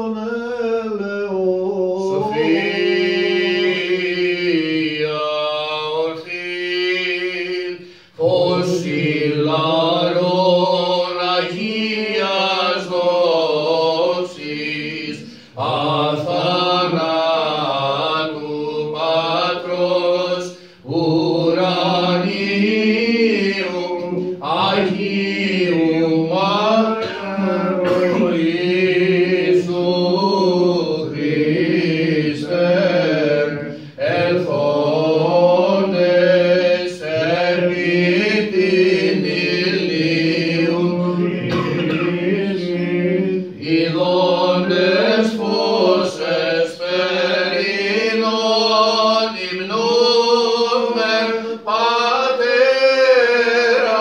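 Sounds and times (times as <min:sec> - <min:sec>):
person chanting a hymn: 0:00.0 - 0:54.0.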